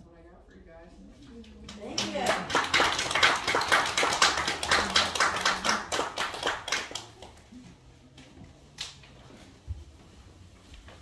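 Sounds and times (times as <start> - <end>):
audience applauding: 1.8 - 7.4.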